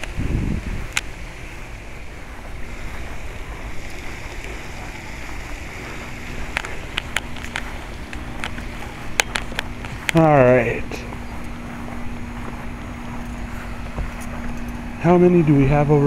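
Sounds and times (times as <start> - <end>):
wind on microphone: 0.0 - 10.1
steady low hum: 0.0 - 16.0
sharp clicks: 0.8 - 1.2, 3.8 - 10.2.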